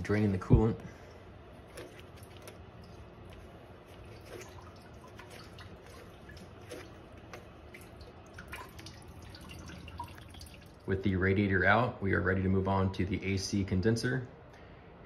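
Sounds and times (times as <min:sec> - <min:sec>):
coolant dripping and trickling: 0:01.0 - 0:11.0.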